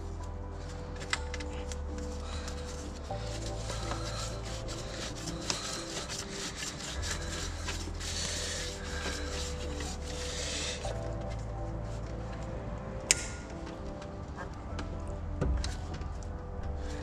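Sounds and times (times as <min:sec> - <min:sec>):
background music with bass: 0:00.0 - 0:17.0
rough rubbing scraping sound: 0:02.1 - 0:11.0.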